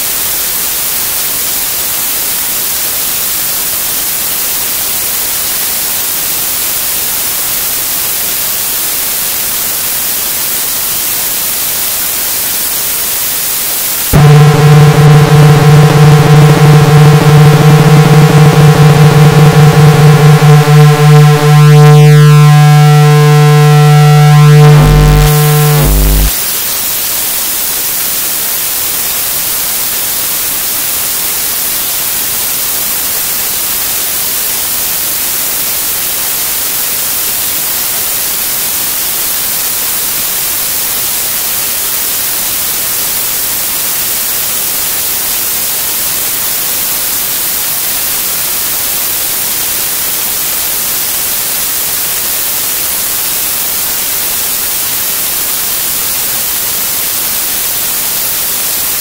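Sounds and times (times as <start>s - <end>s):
static hiss: 0.0s - 59.0s
buzzing electronic tone: 10.6s - 27.1s.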